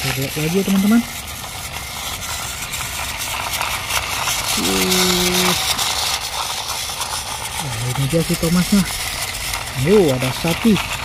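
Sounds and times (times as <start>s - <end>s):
toy train motors whirring: 0.0s - 11.0s
wheels clicking on plastic track: 0.0s - 11.0s.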